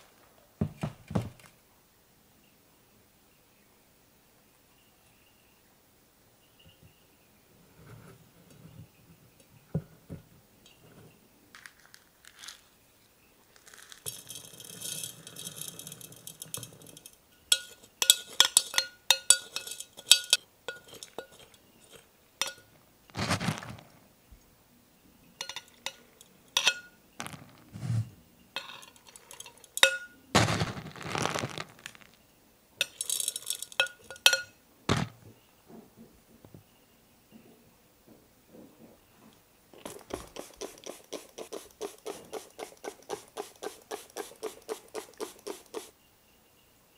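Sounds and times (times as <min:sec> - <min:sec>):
pellets rattling against glass: 0:11.5 - 0:12.7, 0:13.5 - 0:24.0, 0:25.4 - 0:27.6, 0:28.6 - 0:32.2, 0:32.8 - 0:35.1, 0:39.8 - 0:45.9
metal spoon clinking on glass jar: 0:14.0 - 0:22.7, 0:25.4 - 0:27.0, 0:28.6 - 0:30.2, 0:32.8 - 0:34.6.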